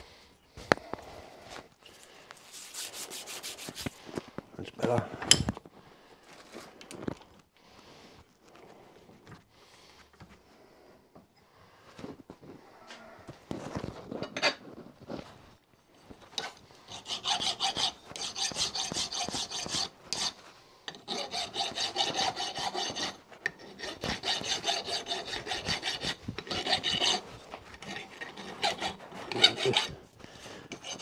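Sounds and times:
hand file rasping on metal pin: 0:02.5 - 0:03.9, 0:16.4 - 0:30.1, 0:30.7 - 0:31.0.

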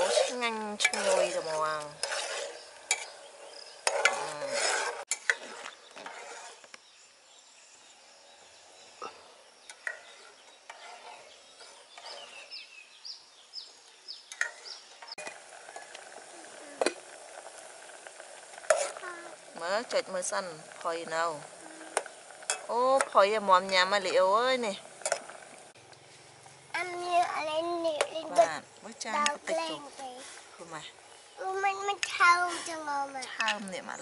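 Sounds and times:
metal ladle stirring food in pot: 0:00.0 - 0:06.7, 0:09.6 - 0:12.5, 0:14.3 - 0:24.2.

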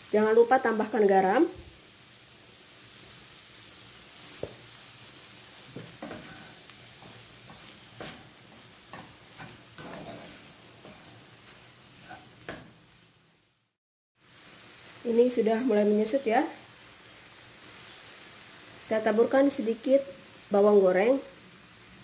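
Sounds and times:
meat frying with sizzle: 0:00.0 - 0:22.0
spatula scraping pan: 0:05.7 - 0:12.7.

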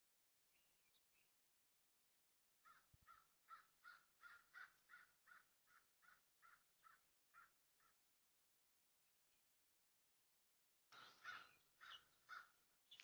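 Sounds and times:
crow cawing: 0:02.6 - 0:07.9, 0:11.0 - 0:13.0.

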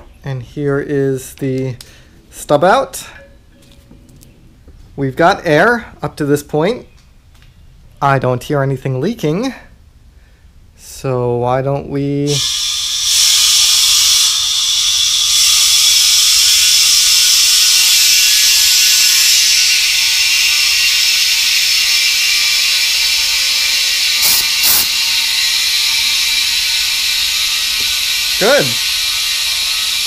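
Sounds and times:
compressed air hissing into tank: 0:12.3 - 0:30.0.

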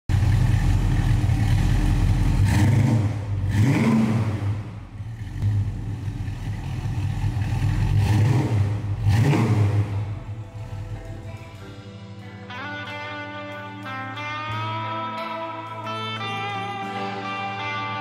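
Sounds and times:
car engine idling and revving: 0:00.1 - 0:11.8.

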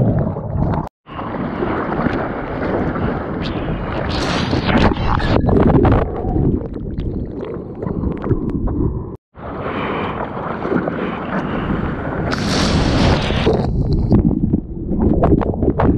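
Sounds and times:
water sloshing and splashing: 0:00.0 - 0:04.6, 0:09.7 - 0:12.4.

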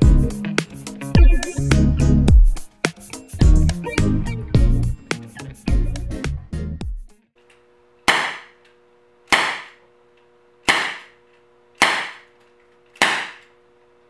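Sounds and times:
air pistol shots: 0:08.1 - 0:08.5, 0:09.3 - 0:09.8, 0:10.7 - 0:11.2, 0:11.8 - 0:12.3, 0:13.0 - 0:13.5.

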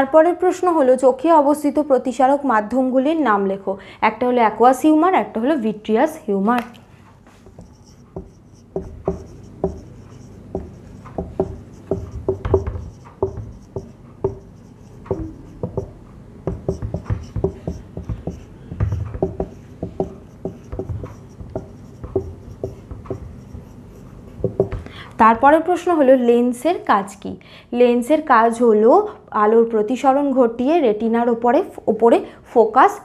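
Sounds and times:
marker pen writing on whiteboard: 0:07.3 - 0:25.5.

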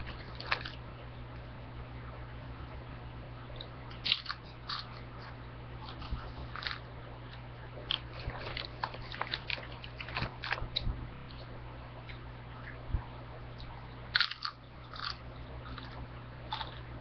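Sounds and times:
steady low hum: 0:00.0 - 0:17.0
chips crunching while chewed: 0:04.0 - 0:05.1, 0:05.8 - 0:10.8, 0:14.1 - 0:16.9.

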